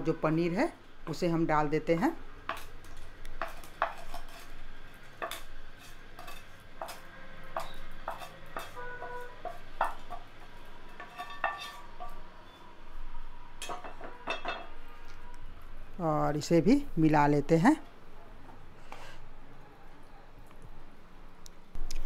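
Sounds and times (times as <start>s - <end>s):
spatula scraping metal pan: 3.4s - 4.6s, 5.2s - 12.3s.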